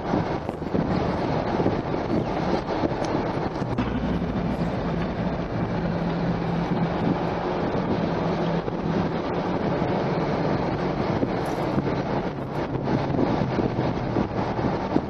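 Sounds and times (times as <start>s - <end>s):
in-cabin car engine and road rumble: 0.0s - 15.0s.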